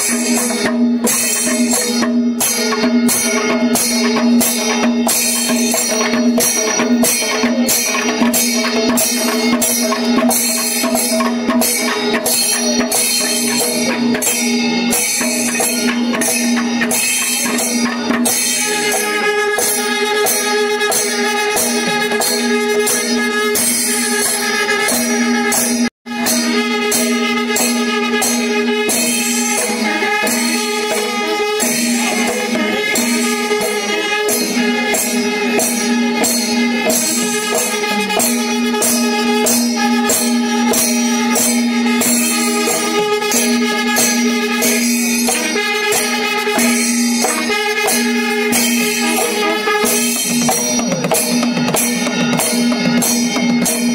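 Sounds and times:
drums: 0.0 - 53.9
small cymbals clashing: 0.0 - 53.9.

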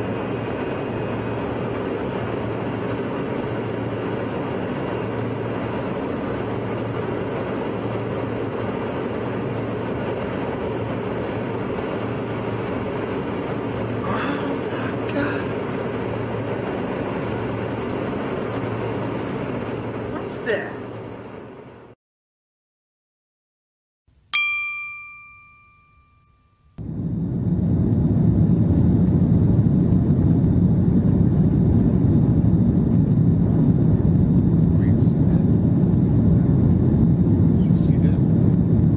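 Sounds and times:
airliner cabin engine rush: 0.0 - 22.0, 26.8 - 38.9
faint steady high tone: 24.3 - 26.8.

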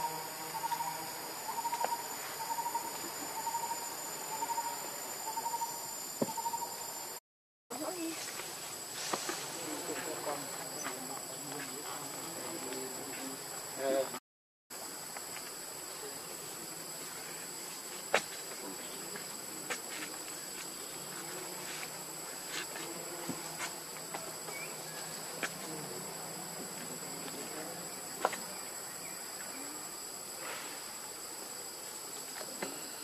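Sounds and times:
high-pitched insect drone: 0.0 - 7.2.

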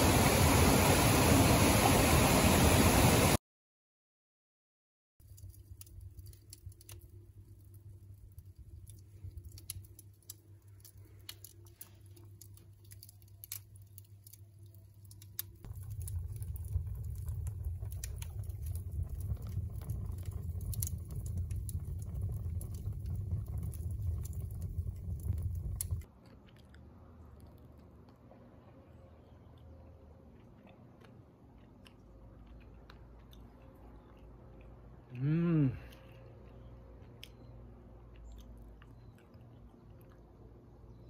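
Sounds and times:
wood fire crackling and popping: 5.2 - 26.2
low rumble of burning: 5.2 - 41.0.

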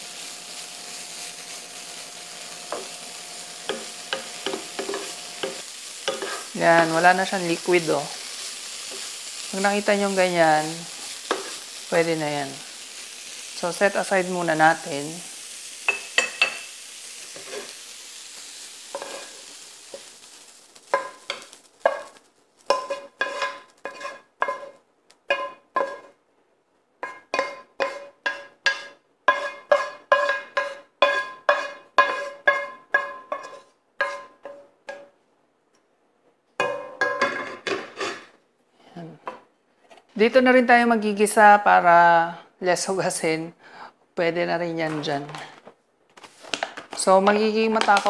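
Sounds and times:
frying pan sizzling: 0.0 - 26.2, 27.0 - 34.5, 46.2 - 48.0
spatula scraping a ringing pan: 3.7 - 6.5, 18.9 - 19.4, 20.9 - 26.1, 27.0 - 34.7.

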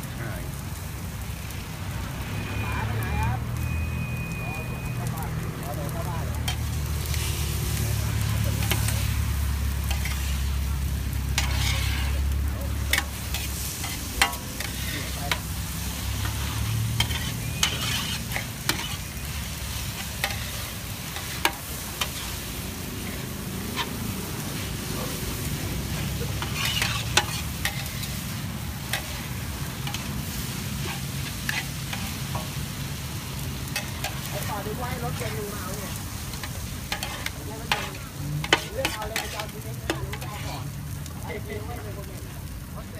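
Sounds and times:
noodles sizzling in a pan: 0.0 - 42.9
metal spatula scraping a pan: 6.4 - 32.8, 33.6 - 40.8.

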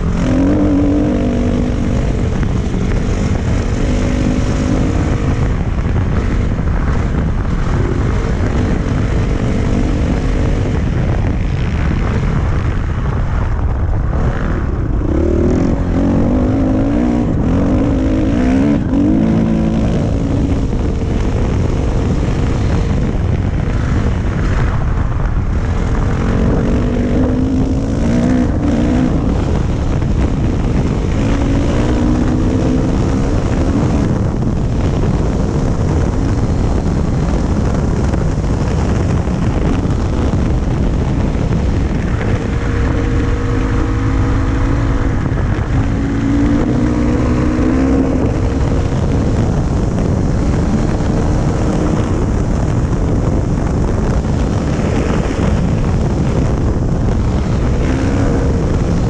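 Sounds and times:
dirt bike engine revving: 0.0 - 7.0
wind noise on microphone: 0.0 - 59.0.

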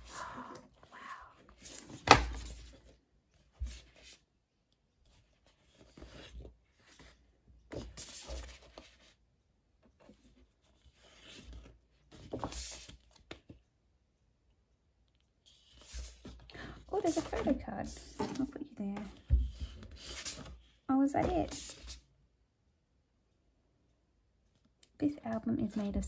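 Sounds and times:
paper rustling and sliding: 10.0 - 13.3, 15.5 - 16.4, 17.0 - 22.0.

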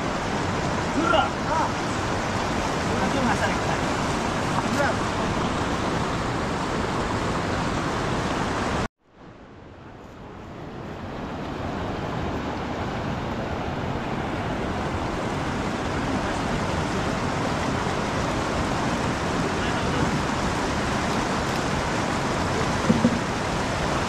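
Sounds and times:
river rushing over boulders: 0.0 - 24.0.

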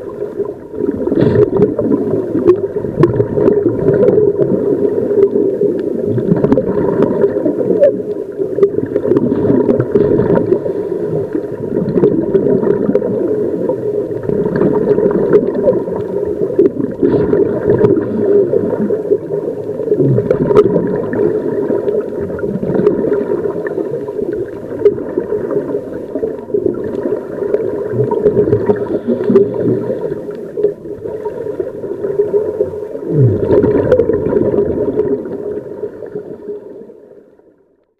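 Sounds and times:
underwater air bubbles rumbling: 0.0 - 37.6.

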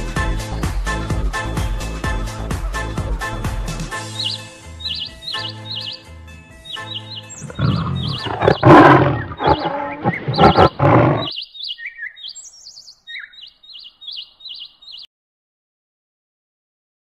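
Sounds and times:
songbirds chirping: 4.0 - 15.1
tiger roaring: 7.4 - 11.3.

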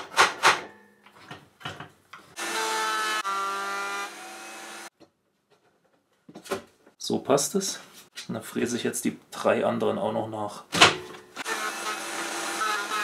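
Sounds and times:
router motor whine and cutting: 2.4 - 4.9, 11.4 - 13.0.

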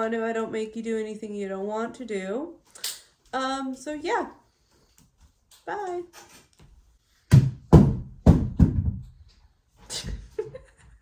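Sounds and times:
plastic ball bouncing on floor: 7.3 - 9.3.

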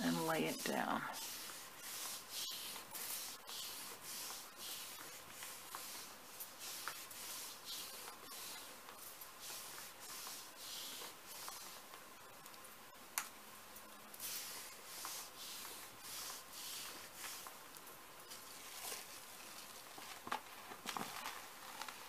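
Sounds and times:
hands rubbing paper: 0.0 - 11.9, 14.2 - 17.6.

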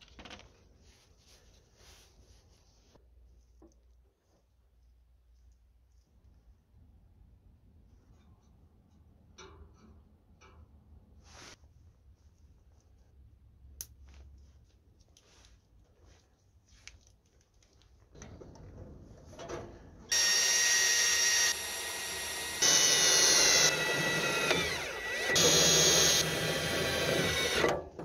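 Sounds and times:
cordless drill whining: 20.1 - 27.8.

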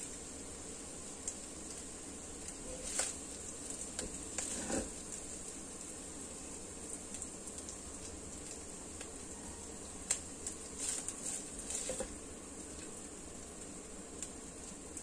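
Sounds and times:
pan sizzling: 0.0 - 15.0
spatula tapping and scraping plate: 4.4 - 4.9.

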